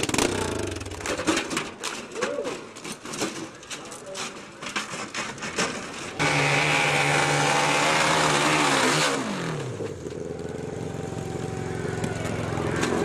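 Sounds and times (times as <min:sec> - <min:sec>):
motorcycle engine at high revs: 0:00.0 - 0:01.0, 0:06.2 - 0:13.0.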